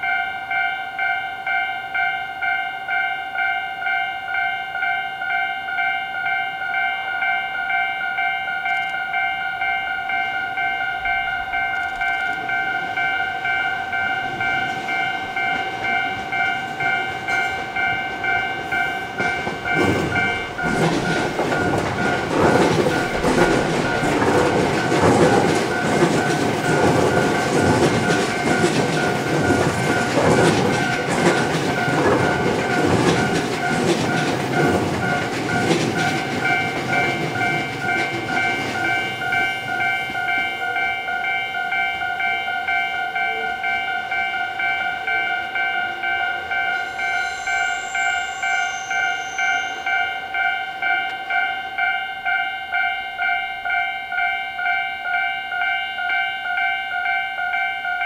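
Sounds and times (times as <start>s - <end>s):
level crossing alarm ringing: 0.0s - 58.0s
train wheels clattering over rail joints: 11.0s - 42.8s.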